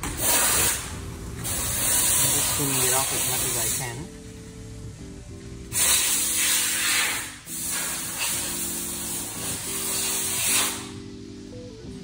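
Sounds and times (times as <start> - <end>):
aerosol spray hissing: 0.1 - 4.1, 5.7 - 11.0.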